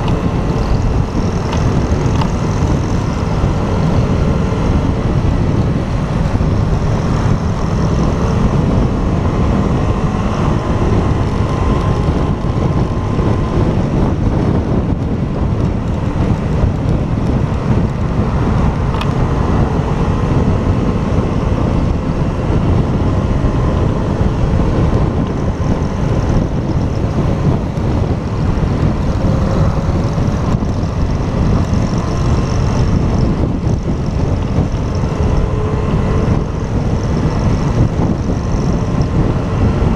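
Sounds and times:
motorcycle engine running: 0:00.0 - 0:39.9
wind rumble on microphone: 0:00.0 - 0:39.9.

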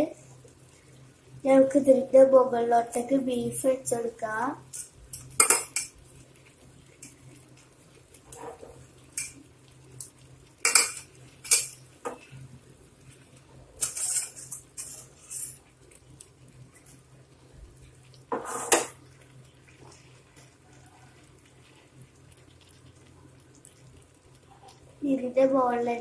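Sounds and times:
metal utensils clinking on cookware: 0:10.6 - 0:11.8, 0:13.8 - 0:15.6.

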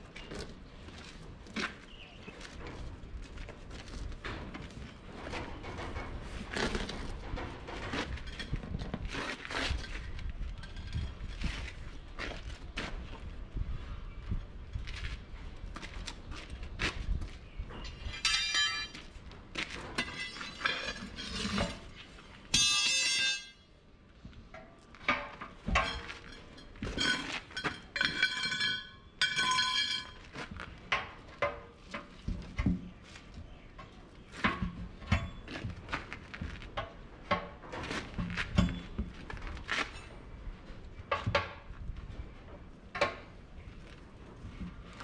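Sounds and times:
tire irons clanking and scraping: 0:00.0 - 0:45.0
ringing metal strikes: 0:22.5 - 0:23.7.

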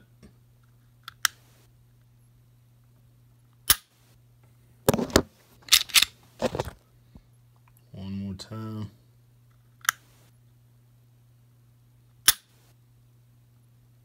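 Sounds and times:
pistol handling clicks and clatter: 0:04.9 - 0:06.2
pistol trigger click: 0:12.3 - 0:12.5.

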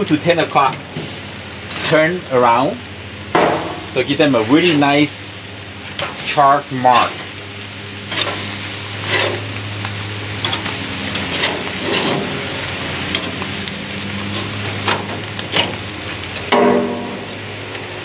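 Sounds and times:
meat sizzling on a grill: 0:00.0 - 0:18.0
tongs clacking on grill grates: 0:05.9 - 0:07.4, 0:08.0 - 0:17.0.

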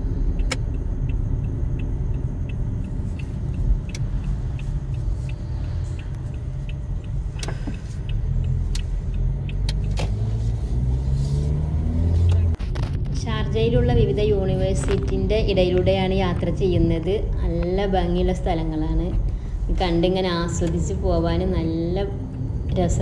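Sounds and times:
light regular ticking: 0:00.0 - 0:10.3, 0:13.5 - 0:23.0
car engine and tyre rumble: 0:00.0 - 0:23.0.

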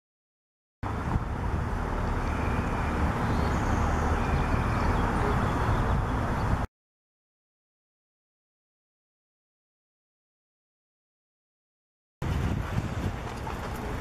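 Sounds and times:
distant road traffic rumble: 0:00.8 - 0:06.7, 0:12.2 - 0:14.0
wind on microphone: 0:00.8 - 0:06.7, 0:12.2 - 0:14.0.

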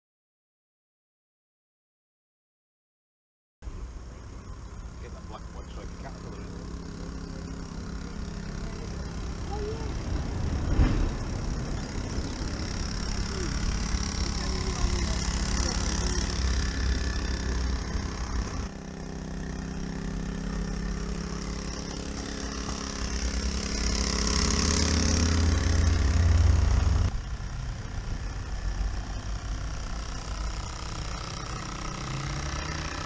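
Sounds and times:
model locomotive diesel chug: 0:03.7 - 0:18.7.

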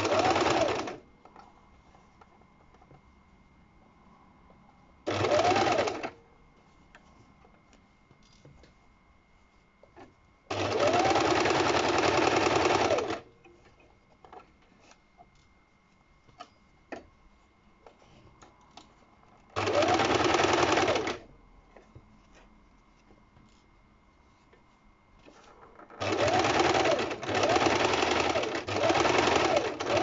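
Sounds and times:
sewing machine stitching: 0:00.0 - 0:01.0, 0:05.1 - 0:06.2, 0:10.5 - 0:13.3, 0:19.6 - 0:21.2, 0:26.0 - 0:30.0.

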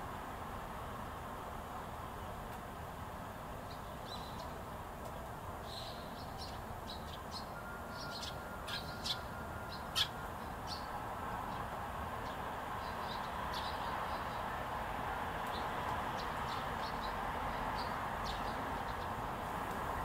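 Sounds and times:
sparrows chirping: 0:03.6 - 0:14.6, 0:15.4 - 0:19.3.

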